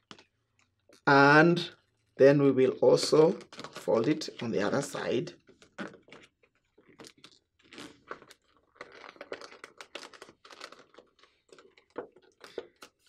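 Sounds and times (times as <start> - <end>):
paper rustling and crinkling: 3.1 - 13.0.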